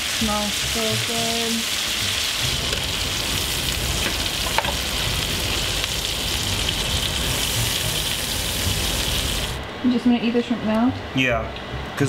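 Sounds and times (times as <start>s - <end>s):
shrimp sizzling in a pan: 0.0s - 9.6s.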